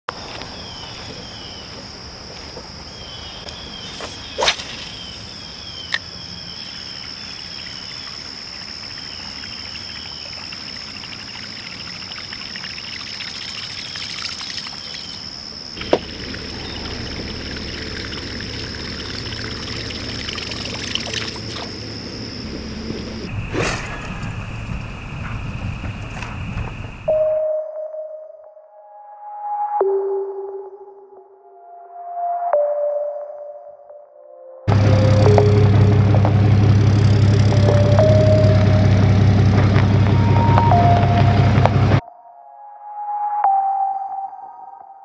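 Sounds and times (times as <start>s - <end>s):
high-pitched insect drone: 2.9s - 23.3s, 34.7s - 41.6s
low rumble: 15.8s - 27.1s, 34.7s - 42.0s.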